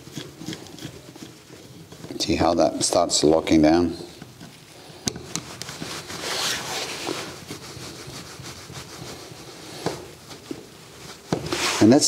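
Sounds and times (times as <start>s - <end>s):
screwdriver turning a screw: 0.0s - 2.1s.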